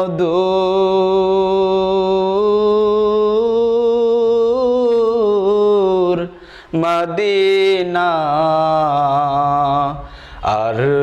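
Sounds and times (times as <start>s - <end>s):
man singing unaccompanied: 0.0s - 11.0s.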